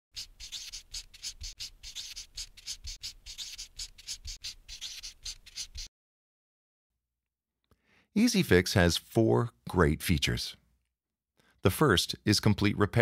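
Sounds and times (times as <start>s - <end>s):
pen scribbling on paper: 0.1s - 5.9s.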